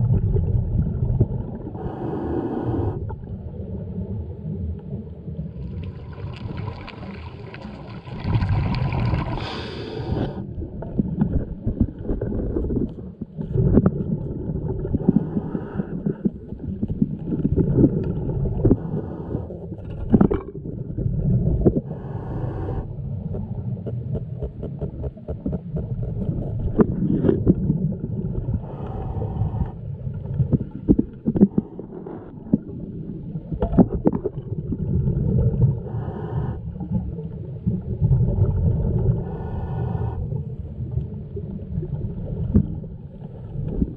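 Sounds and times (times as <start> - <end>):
diver regulator bubbling: 0.0 - 43.9
muffled underwater rumble: 0.0 - 43.9
knocks and scrapes: 23.3 - 27.7.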